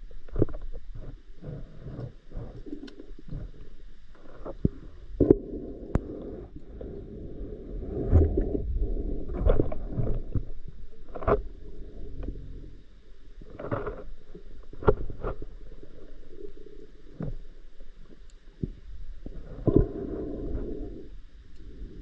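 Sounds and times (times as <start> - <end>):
muffled underwater rumble: 0.0 - 22.0.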